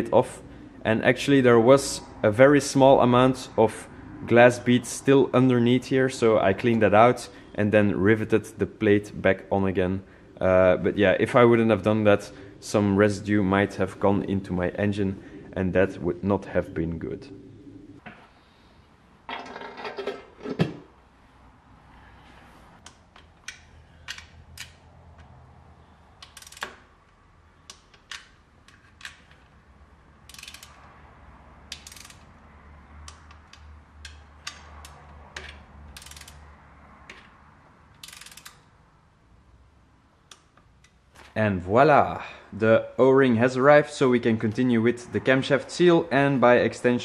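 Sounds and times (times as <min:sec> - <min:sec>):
metal cover set down clattering: 0:19.3 - 0:20.9
hand ratchet clicking: 0:22.8 - 0:24.8, 0:26.2 - 0:29.4, 0:30.2 - 0:30.9, 0:31.7 - 0:32.3, 0:33.0 - 0:36.5, 0:37.9 - 0:38.7.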